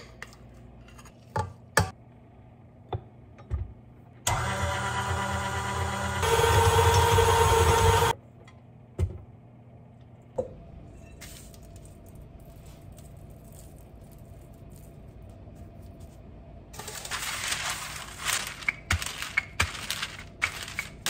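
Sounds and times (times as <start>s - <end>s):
stand mixer humming: 4.3s - 8.2s.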